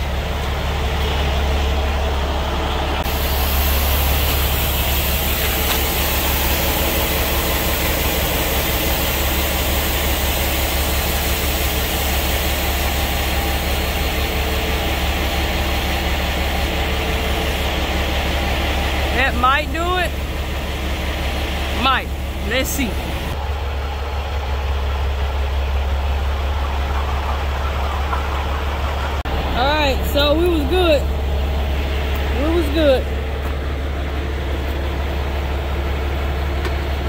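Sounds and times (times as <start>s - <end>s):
diesel engine idling: 0.0s - 37.0s.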